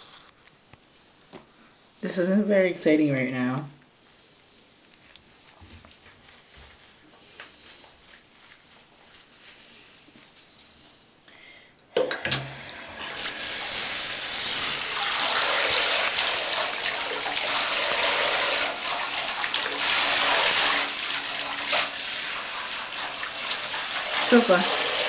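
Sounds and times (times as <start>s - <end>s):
water running in a bathtub: 12.4s - 25.0s.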